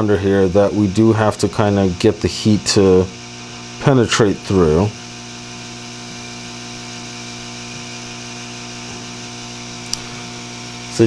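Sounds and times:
hot air station humming: 0.0s - 11.0s
small tick: 9.9s - 10.1s.

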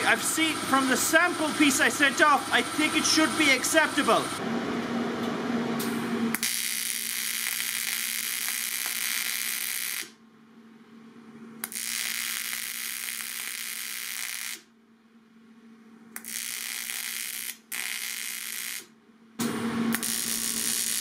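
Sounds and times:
welding arc hissing: 0.0s - 4.4s, 6.3s - 10.2s, 11.6s - 14.7s, 16.2s - 18.9s, 19.9s - 21.0s.

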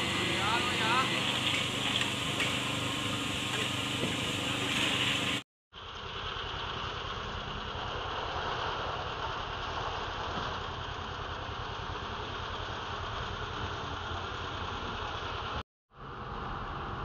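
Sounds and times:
small engine running: 0.0s - 5.1s.

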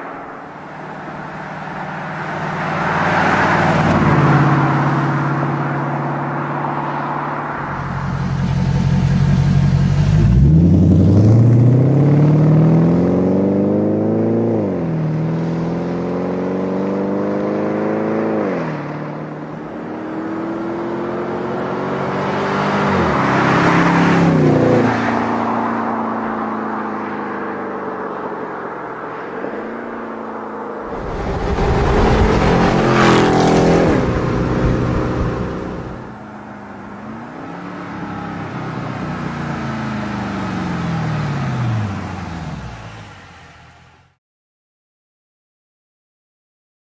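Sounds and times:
car passing by: 1.0s - 13.2s, 30.8s - 36.2s
car engine accelerating hard: 7.5s - 26.3s, 30.8s - 43.0s.

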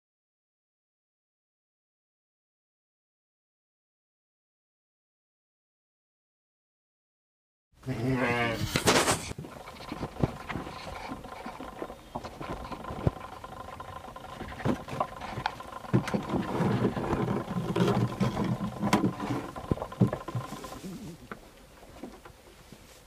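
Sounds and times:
faint steady hum: 7.8s - 23.0s
sheep hooves knocking and rustling: 8.6s - 22.8s.

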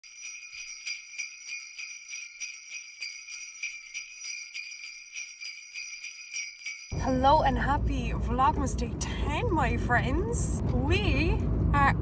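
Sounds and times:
sleigh bells jingling: 0.0s - 7.6s.

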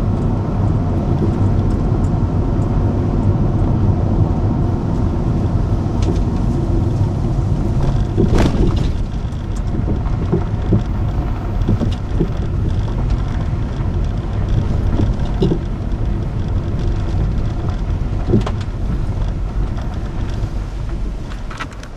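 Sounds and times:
tyre and engine rumble: 0.0s - 21.9s
sharp knocks from bumps: 7.8s - 13.4s, 14.4s - 15.8s.

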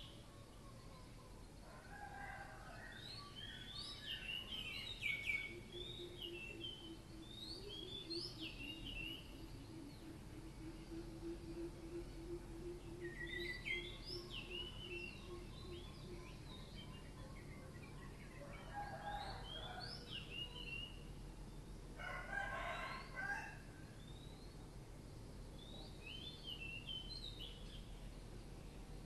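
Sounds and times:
small birds chirping: 0.0s - 22.0s, 23.9s - 29.0s
rooster crowing: 1.7s - 3.1s, 18.4s - 20.2s, 22.0s - 23.7s.

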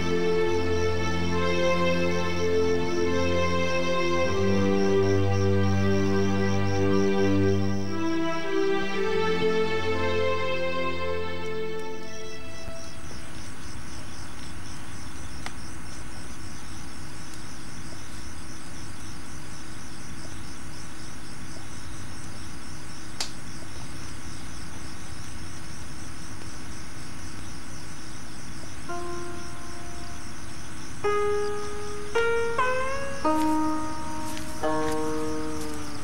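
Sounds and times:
held musical notes: 0.0s - 13.2s, 28.9s - 30.3s, 31.0s - 36.0s
crickets chirping: 0.0s - 36.0s.

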